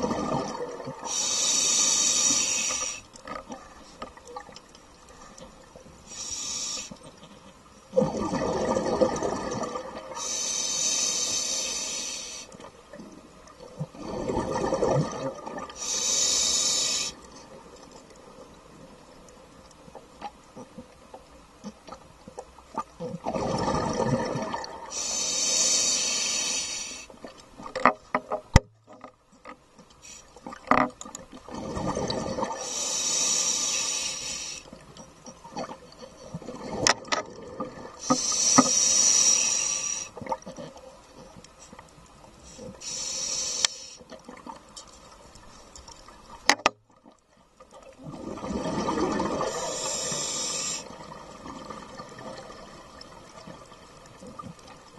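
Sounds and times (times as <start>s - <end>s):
diver breathing through regulator: 1.0s - 3.1s, 6.0s - 7.0s, 10.2s - 12.6s, 15.8s - 17.3s, 24.9s - 27.1s, 32.6s - 34.7s, 38.0s - 40.2s, 42.4s - 44.1s, 49.3s - 51.0s
bubbles streaming: 8.0s - 10.2s, 13.9s - 15.7s, 23.2s - 24.9s, 48.0s - 49.9s.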